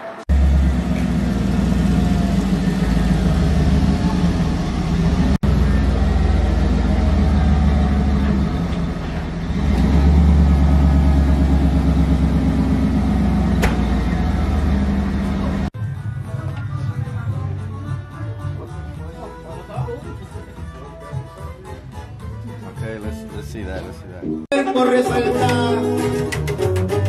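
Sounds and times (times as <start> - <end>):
truck engine running: 0.3 - 17.3.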